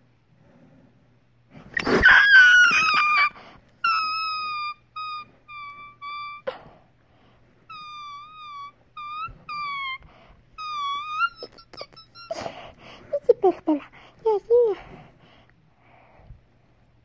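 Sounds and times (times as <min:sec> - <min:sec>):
puppy whining: 0:01.7 - 0:06.8, 0:07.7 - 0:14.8.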